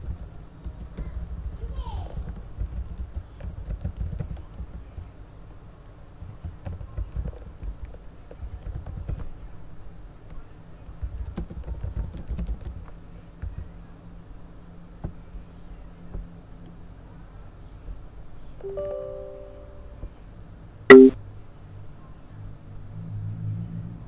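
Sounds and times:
computer keyboard clicks: 2.1 - 5.0, 6.2 - 9.3, 10.9 - 13.7.

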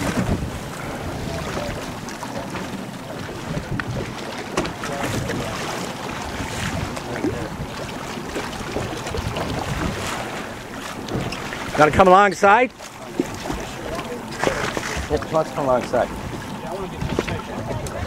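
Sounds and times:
wind buffeting microphone: 0.0 - 12.1, 13.1 - 18.0
water sloshing against hull: 0.0 - 18.0.

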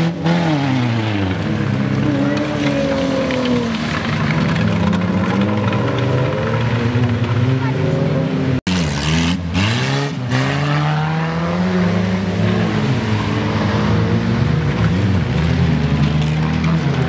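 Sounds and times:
car engines revving hard: 0.0 - 17.0.

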